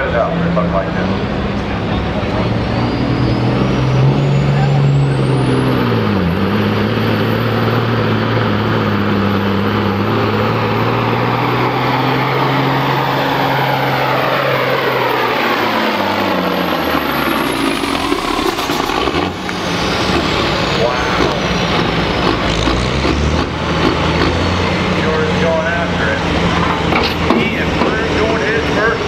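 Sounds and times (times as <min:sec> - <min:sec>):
truck diesel engine at full power: 0:00.0 - 0:29.0.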